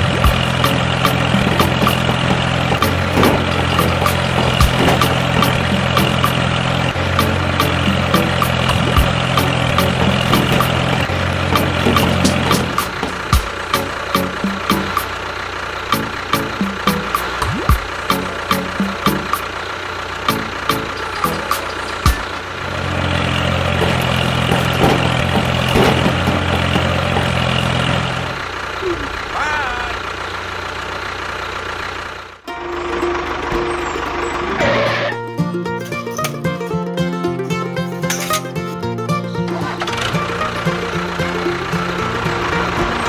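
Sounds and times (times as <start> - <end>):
clicks and rattles: 0.0 - 15.1, 20.3 - 28.3, 37.9 - 38.7
diesel engine idling: 0.0 - 35.8, 36.5 - 43.0
sharp ticking beat: 7.1 - 15.1, 15.9 - 19.5.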